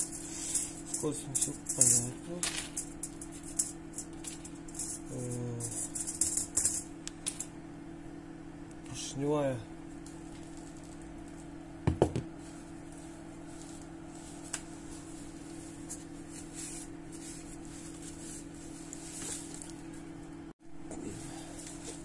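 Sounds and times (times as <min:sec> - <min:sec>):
low electrical hum: 0:00.0 - 0:22.0
paper towel rustling: 0:12.4 - 0:20.1.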